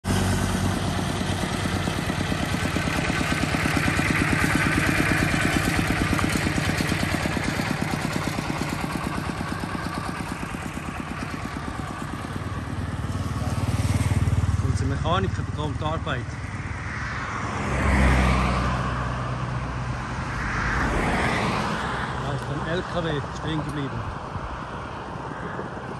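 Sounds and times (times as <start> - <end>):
diesel tractor engine chugging: 0.0 - 16.6.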